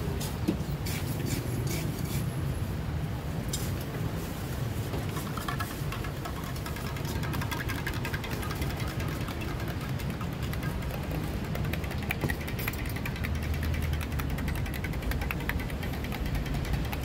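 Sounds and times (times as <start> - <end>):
low rumble of traffic: 0.0 - 17.0
metal spoon stirring in a cup: 5.1 - 17.0.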